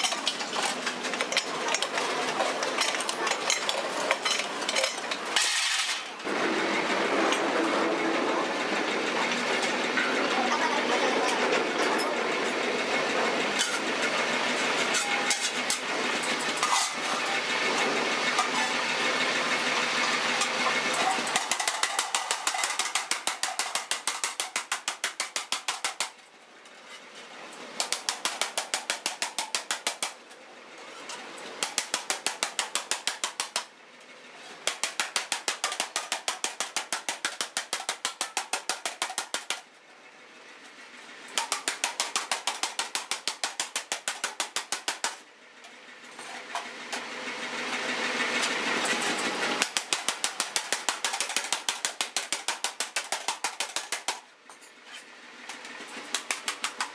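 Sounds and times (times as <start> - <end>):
power hammer pounding steel: 12.6 - 26.2, 27.8 - 30.2, 31.6 - 33.7, 34.6 - 39.6, 41.3 - 45.2, 49.6 - 54.2.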